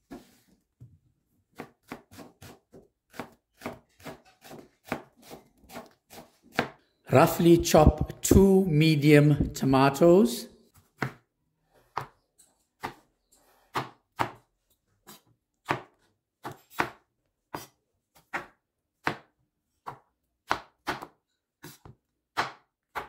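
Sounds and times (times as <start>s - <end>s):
knife chopping on cutting board: 1.5s - 6.8s, 10.8s - 11.2s, 12.8s - 14.4s, 15.0s - 23.0s.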